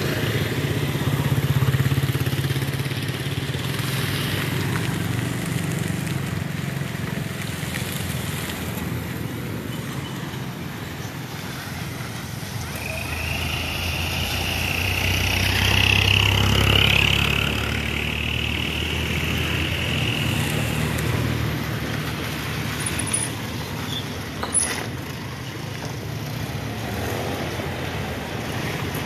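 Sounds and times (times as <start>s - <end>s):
cars and motorbikes passing: 0.0s - 29.0s
lorry engine passing: 10.7s - 23.6s.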